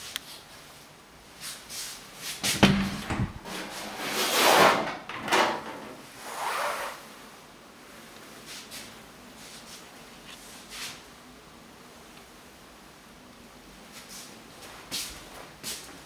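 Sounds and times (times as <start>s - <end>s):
door clacking open: 2.4s - 3.9s.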